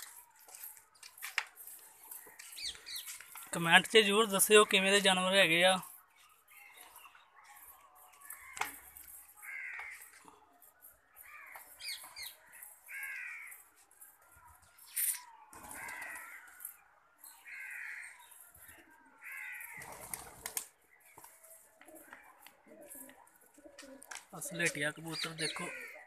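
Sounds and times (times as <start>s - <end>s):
crow cawing: 9.4s - 10.1s, 12.9s - 13.6s, 15.6s - 16.6s, 17.4s - 18.2s, 19.2s - 20.0s, 25.5s - 26.0s.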